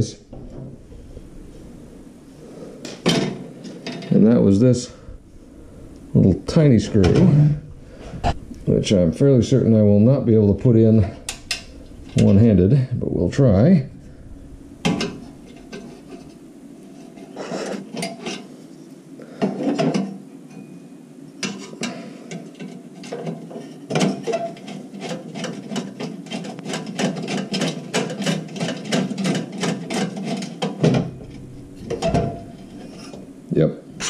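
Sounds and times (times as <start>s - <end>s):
screwdriver scraping: 23.0s - 30.7s.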